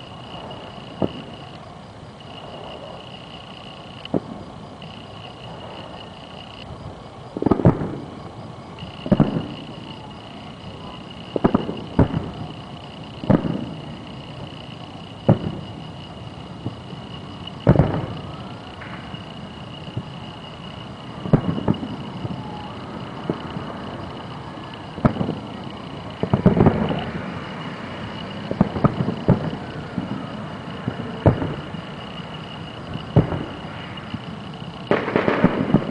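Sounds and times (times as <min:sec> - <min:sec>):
distant firework booms: 0:15.2 - 0:15.8, 0:17.6 - 0:19.1, 0:21.2 - 0:23.7, 0:24.9 - 0:25.4, 0:26.2 - 0:27.7, 0:28.4 - 0:32.0, 0:32.9 - 0:34.2, 0:34.9 - 0:35.9.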